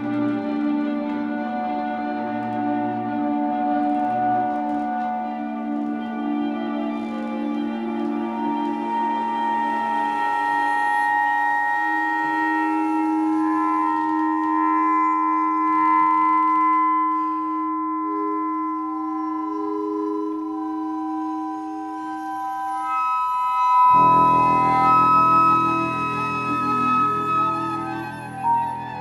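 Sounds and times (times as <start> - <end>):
chamber music held notes: 0.0 - 29.0
deep chord: 23.6 - 29.0.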